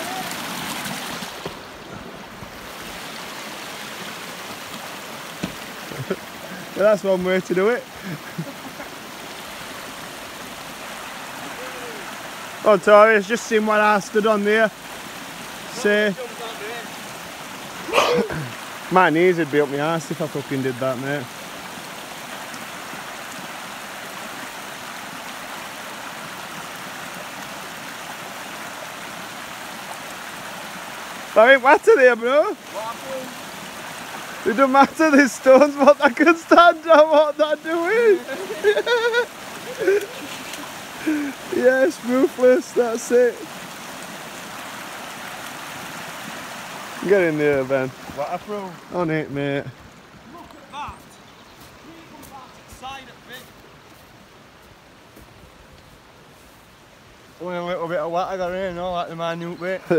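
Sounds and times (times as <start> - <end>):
stream running over stones: 0.0 - 59.9
short thump: 5.4 - 5.6.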